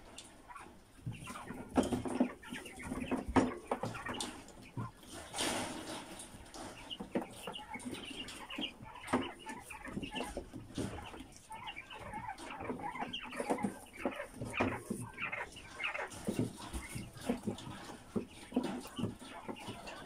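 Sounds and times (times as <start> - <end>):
quail clucking and chirping: 0.0 - 20.0
wire mesh rattling: 5.1 - 20.0.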